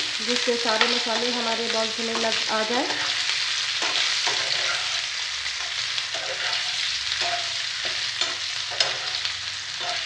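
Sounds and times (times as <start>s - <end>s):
food sizzling in hot oil: 0.0s - 10.0s
spoon scraping and knocking pan: 2.1s - 10.0s.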